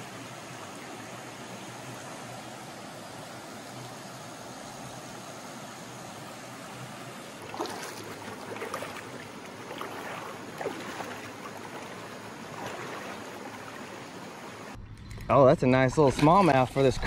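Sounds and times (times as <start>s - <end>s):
creek water running over rocks: 0.0s - 14.8s
splashing footsteps in water: 7.4s - 14.2s.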